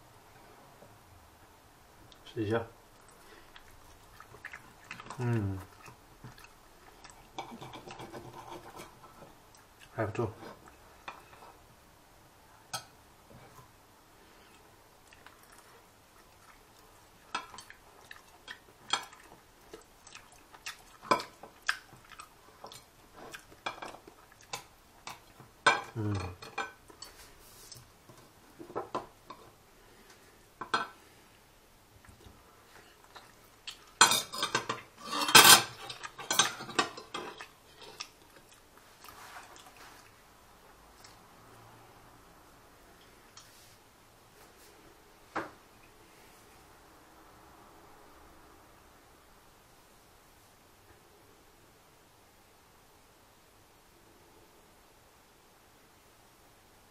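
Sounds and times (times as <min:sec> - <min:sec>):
cutlery clinking on a ceramic plate: 0:34.0 - 0:37.4.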